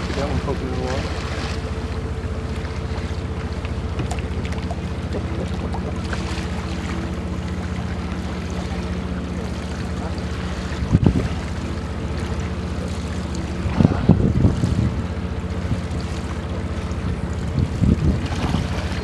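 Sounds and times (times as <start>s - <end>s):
boat engine running: 0.0s - 19.0s.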